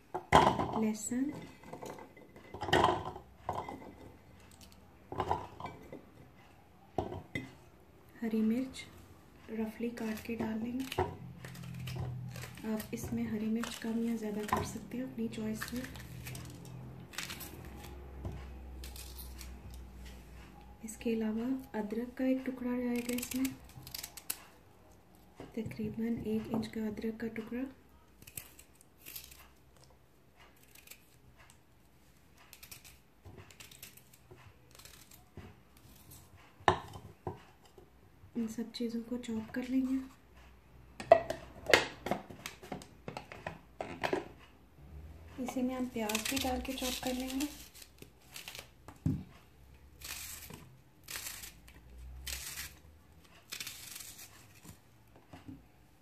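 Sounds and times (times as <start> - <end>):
onion layers snapping and tearing: 10.0 - 14.9, 15.5 - 18.0, 22.9 - 24.6, 45.8 - 48.8, 50.0 - 54.8
knife cutting ginger: 21.5 - 24.6, 28.2 - 29.9, 30.5 - 31.2, 32.5 - 37.0, 45.4 - 54.8.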